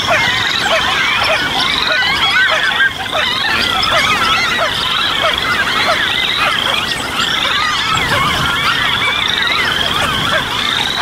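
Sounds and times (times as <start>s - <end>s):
birds chirping: 0.0s - 11.0s
frogs calling: 0.0s - 11.0s.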